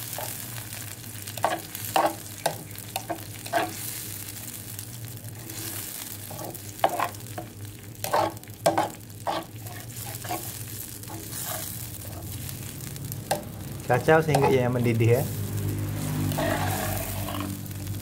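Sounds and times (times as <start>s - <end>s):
spatula scraping a pan: 0.0s - 0.5s, 1.3s - 4.2s, 5.4s - 12.7s, 14.3s - 17.7s
sauce sizzling in oil: 0.0s - 18.0s.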